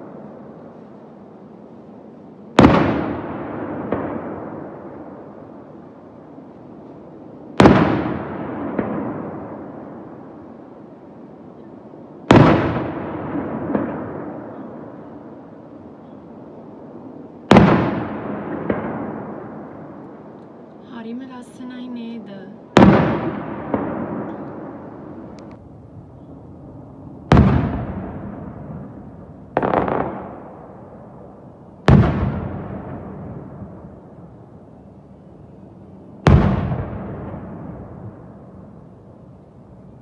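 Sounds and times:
firework crack: 0:00.0 - 0:01.2, 0:02.4 - 0:15.7, 0:16.6 - 0:34.5, 0:36.1 - 0:40.0
firework shells booming: 0:02.6 - 0:05.3, 0:07.6 - 0:10.3, 0:12.2 - 0:15.1, 0:17.4 - 0:20.3, 0:22.7 - 0:25.6, 0:27.1 - 0:34.2, 0:36.2 - 0:38.6.

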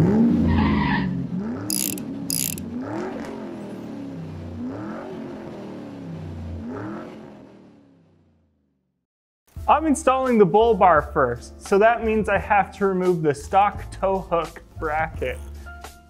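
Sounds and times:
mechanical ratcheting bursts: 0:01.7 - 0:02.6.

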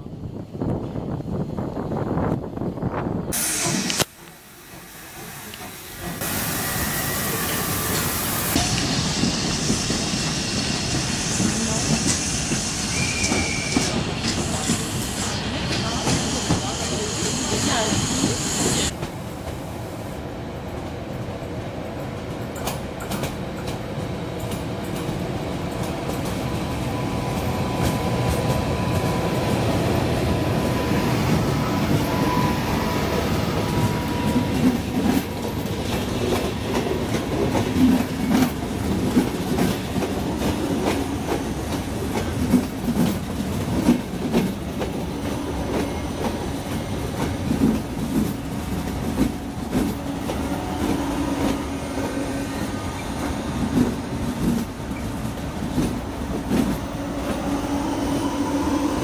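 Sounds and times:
train wheels clicking over rail joints: 0:22.3 - 0:29.2, 0:33.6 - 0:57.5.

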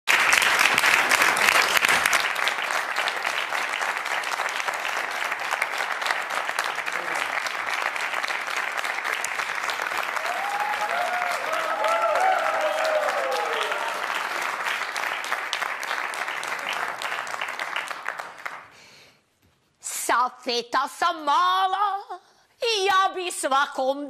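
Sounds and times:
audience applauding: 0:00.0 - 0:18.8.

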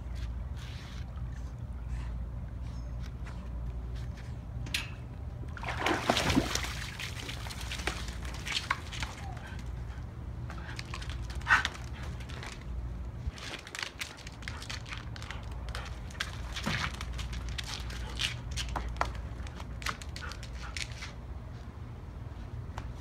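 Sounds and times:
steady low hum: 0:00.0 - 0:23.0
palm fronds rustling and crackling: 0:10.7 - 0:20.0.

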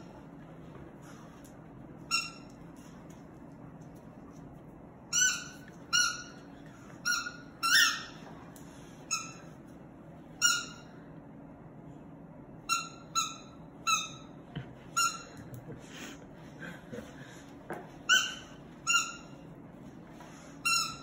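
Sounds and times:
squeaky dog toy squeaking: 0:05.1 - 0:06.4, 0:07.0 - 0:08.2, 0:10.4 - 0:10.8, 0:12.6 - 0:14.3, 0:15.0 - 0:15.3, 0:18.1 - 0:19.4, 0:20.6 - 0:21.0.

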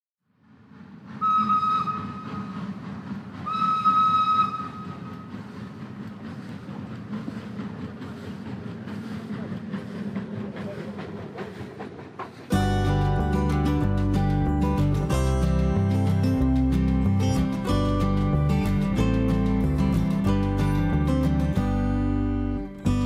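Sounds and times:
steam train rumble: 0:00.3 - 0:23.0
steam train whistle blasts: 0:01.2 - 0:02.7, 0:03.4 - 0:05.2.

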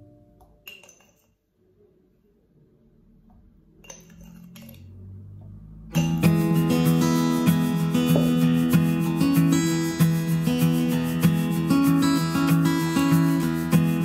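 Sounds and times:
metal spoon clinking glass jar: 0:00.6 - 0:01.4, 0:03.8 - 0:05.0, 0:06.0 - 0:06.4
acoustic guitar music: 0:05.8 - 0:14.0.

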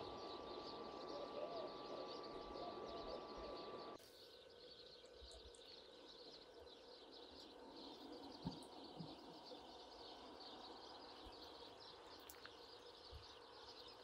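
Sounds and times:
faint birds chirping: 0:00.0 - 0:14.0.

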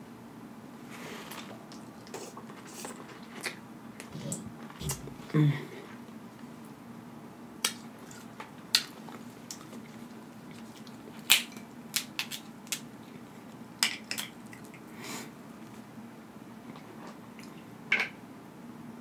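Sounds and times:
crab shells cracking by hand: 0:11.2 - 0:12.9.

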